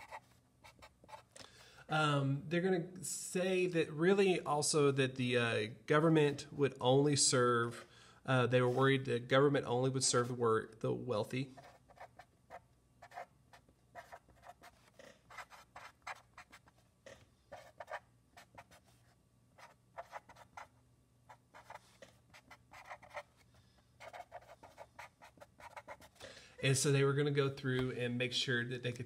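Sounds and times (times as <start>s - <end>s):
marker scratching on paper: 0.0s - 1.3s, 11.6s - 16.8s, 17.5s - 20.7s, 21.3s - 23.4s, 24.0s - 26.2s.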